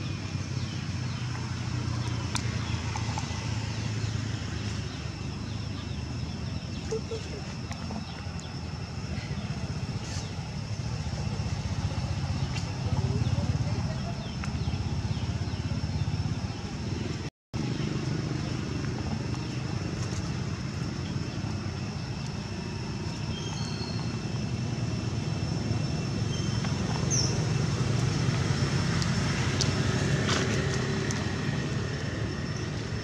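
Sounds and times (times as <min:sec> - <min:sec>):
low outdoor background rumble: 0:00.0 - 0:33.0.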